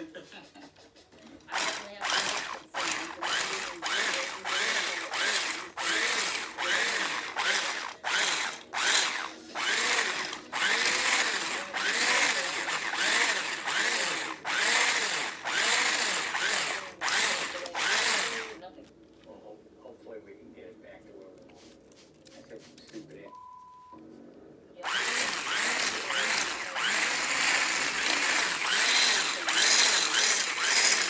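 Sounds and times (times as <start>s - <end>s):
electric whisk pulsing: 1.4s - 18.7s, 24.8s - 31.0s.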